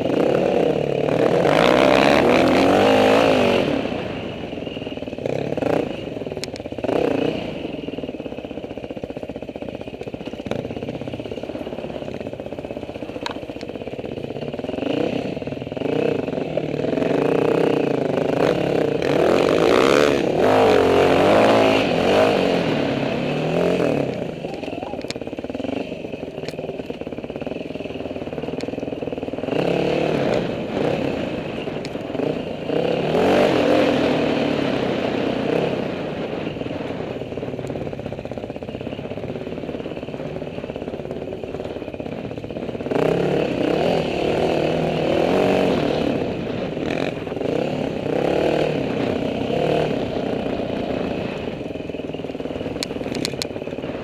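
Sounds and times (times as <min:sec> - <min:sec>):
dirt bike engine revving: 0:00.0 - 0:08.4, 0:14.0 - 0:37.0, 0:39.0 - 0:54.0
bike knocking and rattling: 0:08.1 - 0:17.2, 0:51.6 - 0:54.0.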